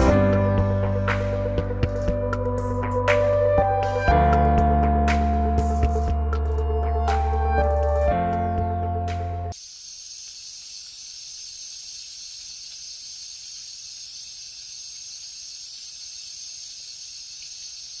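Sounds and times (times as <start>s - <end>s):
background music: 0.0s - 9.6s
steady high hiss: 9.5s - 18.0s.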